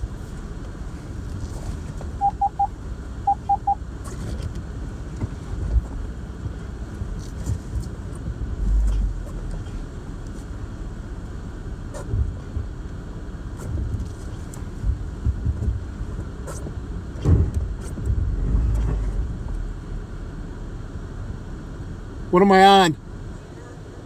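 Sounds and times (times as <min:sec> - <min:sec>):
electronic beeps: 0:02.2 - 0:03.8
vehicle rumble over rocks: 0:13.7 - 0:21.4.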